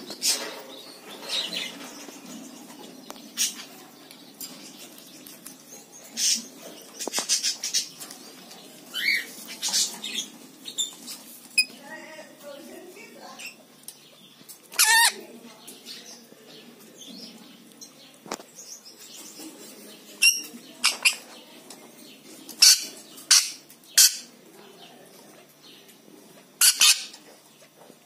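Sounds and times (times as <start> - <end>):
parrot harsh screeches: 14.7 - 15.2, 26.6 - 27.1.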